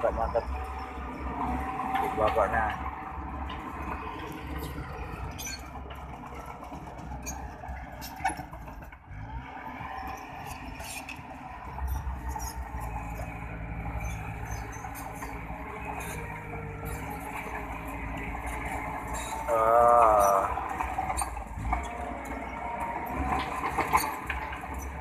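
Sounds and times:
bulldozer diesel engine running: 0.0s - 25.0s
steel tracks clanking: 13.9s - 25.0s.

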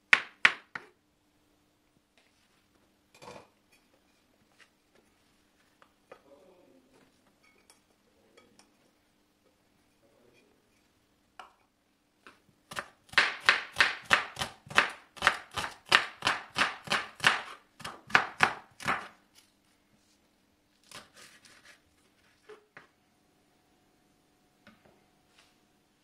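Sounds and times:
knife chopping on wooden board: 12.7s - 19.1s.

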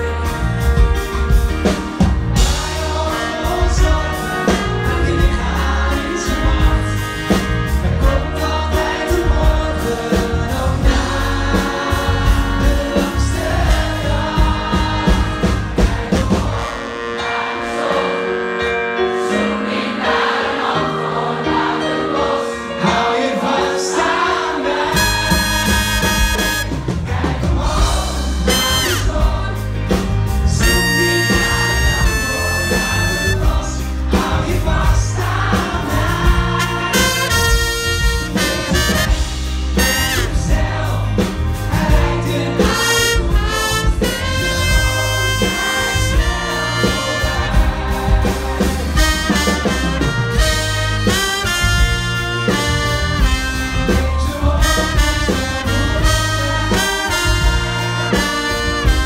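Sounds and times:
drums and cymbals: 0.0s - 17.2s, 24.8s - 59.0s
live pop band: 0.0s - 59.0s
man singing lead vocals: 2.4s - 15.4s, 22.6s - 26.7s, 27.7s - 39.1s, 39.8s - 49.8s, 53.4s - 59.0s.

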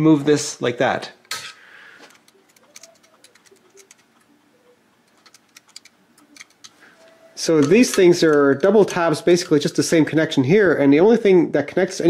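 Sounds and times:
probe tips clicking on metal: 2.1s - 4.3s, 5.1s - 6.8s.

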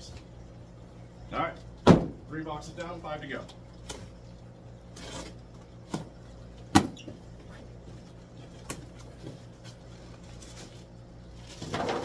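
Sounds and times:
steady low hum: 0.0s - 12.0s
handling rustle: 9.0s - 11.8s.

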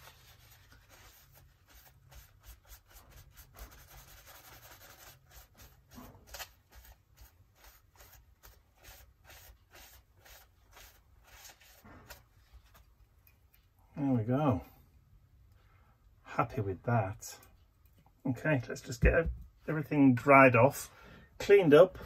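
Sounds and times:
tissue rubbing on glass bottle: 0.0s - 12.8s.

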